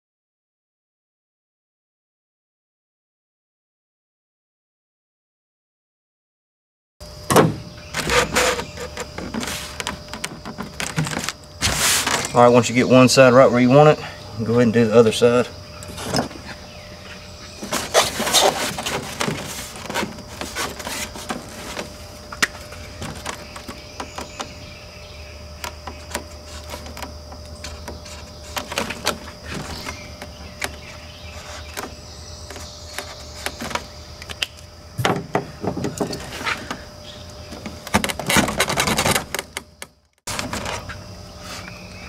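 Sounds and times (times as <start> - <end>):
cardboard rustling and scraping on metal: 7.3 - 12.8, 15.8 - 34.2, 35.0 - 41.7.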